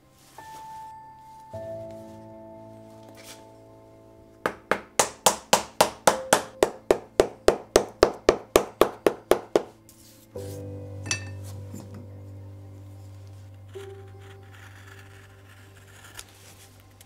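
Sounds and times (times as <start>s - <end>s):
hammer tapping leather: 4.5s - 9.8s.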